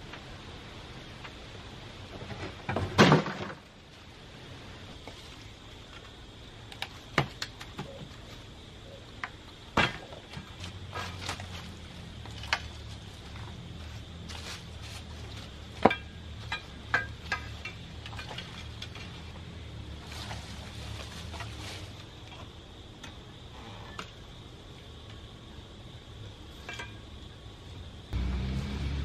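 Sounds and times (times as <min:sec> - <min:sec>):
wooden box crashing down: 0:02.3 - 0:03.7.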